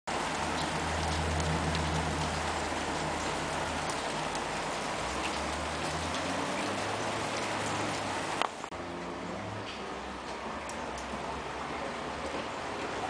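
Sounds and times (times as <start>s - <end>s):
light drips and ticks: 0.1s - 8.8s, 9.6s - 13.0s
rain falling: 0.1s - 13.0s.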